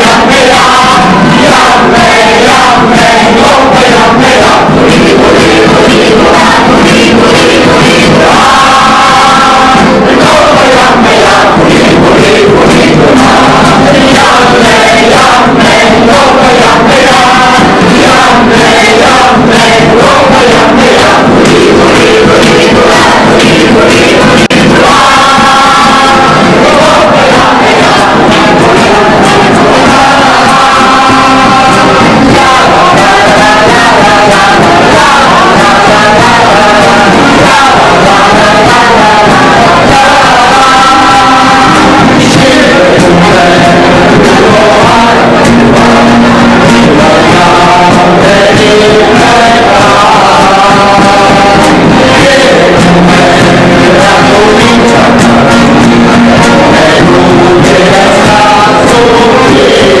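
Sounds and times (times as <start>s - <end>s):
mixed choir singing: 0.0s - 60.0s.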